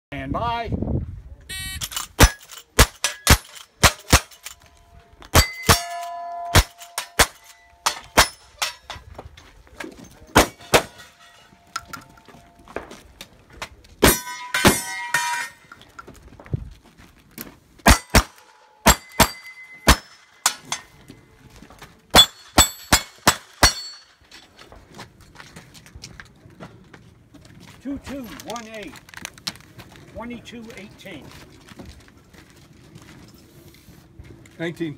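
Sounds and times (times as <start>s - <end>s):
steel plates clanging: 1.5s - 4.7s, 5.3s - 9.1s, 10.3s - 12.4s, 14.0s - 16.0s, 17.9s - 21.1s, 22.1s - 24.7s
gunshots: 1.8s - 4.5s, 17.9s - 20.2s.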